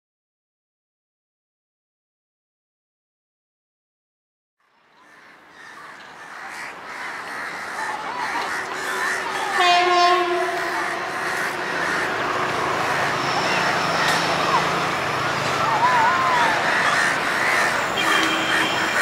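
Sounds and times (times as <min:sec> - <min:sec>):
electric locomotive running: 0:07.7 - 0:19.0
locomotive horn: 0:08.8 - 0:15.6, 0:17.8 - 0:19.0.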